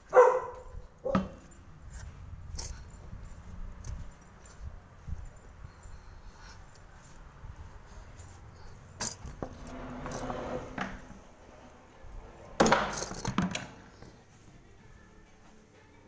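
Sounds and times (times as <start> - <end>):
keys jangling: 0.0 - 14.1
metallic clatter and knocks: 1.0 - 4.6, 12.0 - 14.1
door being unlocked and opened: 9.0 - 13.9.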